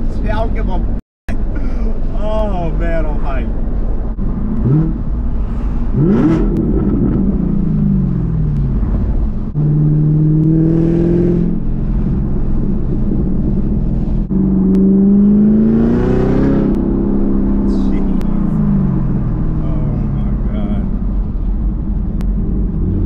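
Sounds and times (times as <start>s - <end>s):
car engine revving inside cabin: 4.2s - 5.3s, 5.9s - 23.0s.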